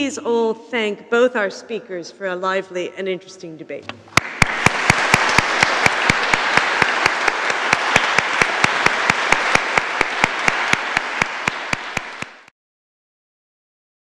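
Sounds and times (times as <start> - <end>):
sharp evenly spaced claps: 4.1 - 12.5
audience applauding: 4.2 - 12.5.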